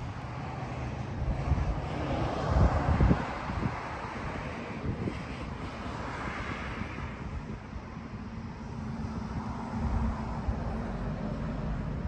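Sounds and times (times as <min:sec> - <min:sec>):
heavy vehicle rumble: 0:00.0 - 0:12.0
road traffic passing: 0:00.0 - 0:12.0.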